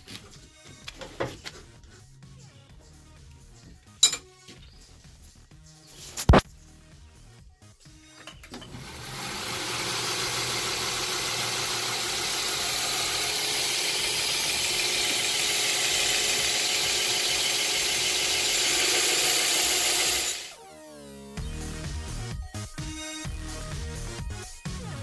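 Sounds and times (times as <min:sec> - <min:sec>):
belt grinder grinding hiss: 0:08.7 - 0:20.6.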